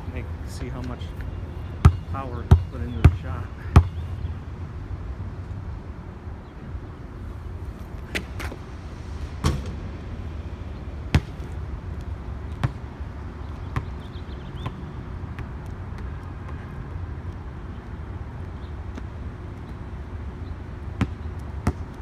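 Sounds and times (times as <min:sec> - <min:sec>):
steady low rumble: 0:00.0 - 0:16.1
basketball bouncing on concrete: 0:01.8 - 0:04.2, 0:11.1 - 0:11.6, 0:12.5 - 0:12.8, 0:13.6 - 0:15.6, 0:21.0 - 0:22.0.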